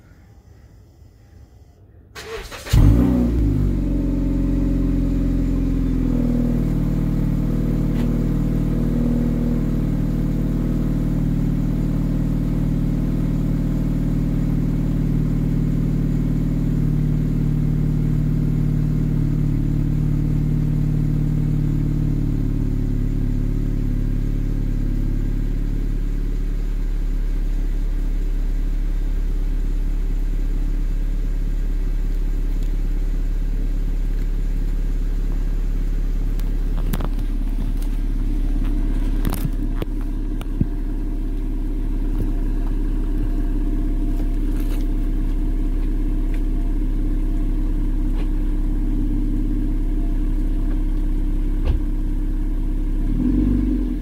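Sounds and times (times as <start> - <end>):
engine cranking: 2.2 - 3.0
car engine revving and idling: 2.2 - 54.0.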